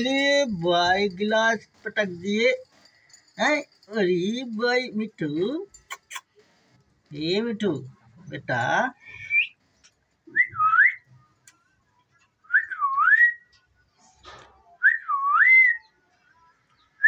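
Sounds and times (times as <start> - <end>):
person whistling: 9.1 - 9.6, 10.3 - 11.1, 12.4 - 13.5, 14.8 - 16.0.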